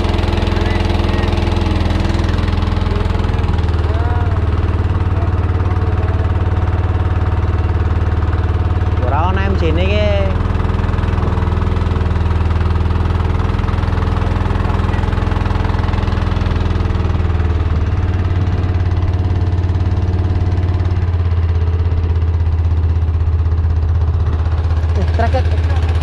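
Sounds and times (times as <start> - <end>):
boat engine humming: 0.0 - 26.0.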